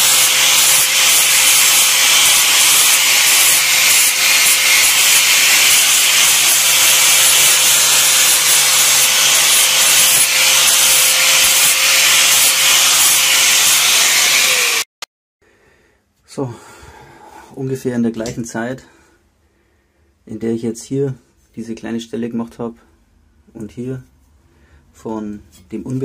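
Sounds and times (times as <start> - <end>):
angle grinder grinding metal: 0.0 - 14.9.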